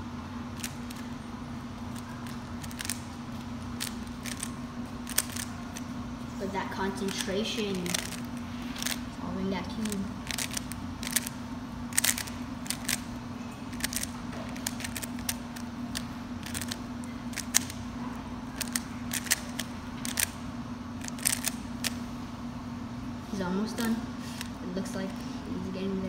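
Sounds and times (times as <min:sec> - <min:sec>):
steady low hum: 0:00.0 - 0:26.0
plastic puzzle cube clicking: 0:00.6 - 0:01.0, 0:01.9 - 0:03.0, 0:03.8 - 0:05.5, 0:07.8 - 0:09.0, 0:10.2 - 0:11.3, 0:11.9 - 0:13.0, 0:13.7 - 0:17.8, 0:18.6 - 0:20.4, 0:21.0 - 0:22.0.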